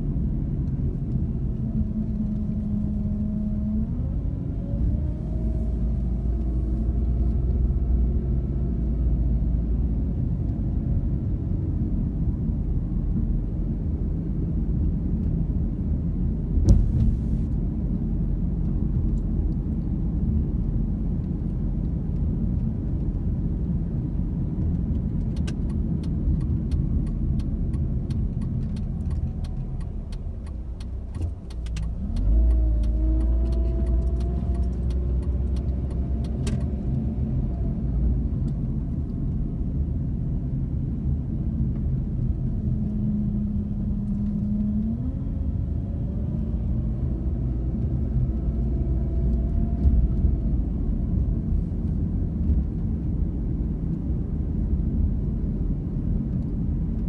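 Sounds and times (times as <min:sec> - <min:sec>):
car engine and tyre noise: 0:00.0 - 0:57.0
thump: 0:16.6 - 0:17.5
light ticking: 0:25.4 - 0:36.7.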